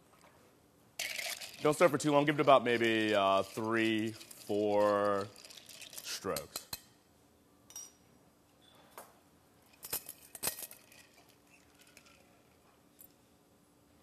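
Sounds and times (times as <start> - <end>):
metal cocktail tin clinking: 1.0 - 6.9.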